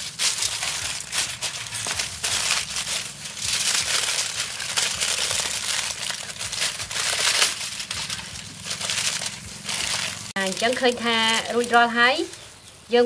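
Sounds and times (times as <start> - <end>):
aluminium foil crinkling: 0.0 - 13.0.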